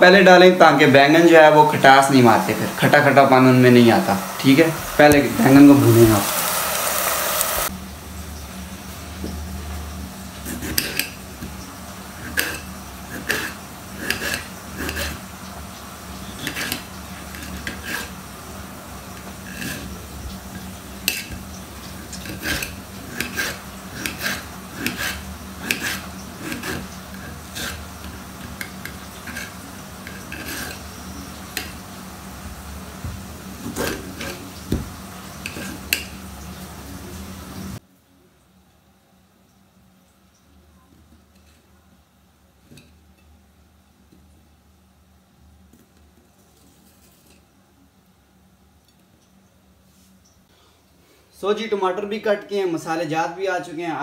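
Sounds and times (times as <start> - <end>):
frying sizzle: 0.0 - 37.8.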